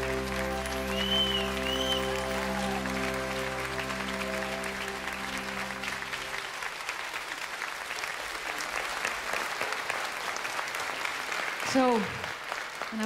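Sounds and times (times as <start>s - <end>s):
held music chord: 0.0s - 6.7s
audience applauding: 0.0s - 13.0s.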